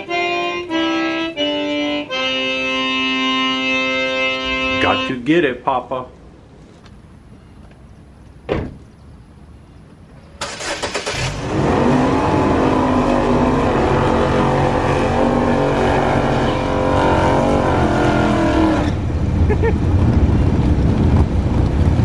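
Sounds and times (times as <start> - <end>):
thump: 8.5 - 8.8
car engine starting and idling: 10.3 - 22.0.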